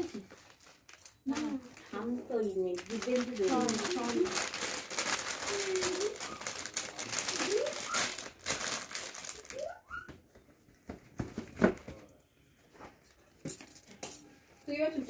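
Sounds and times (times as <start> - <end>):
gift packaging crinkling: 0.0 - 10.0.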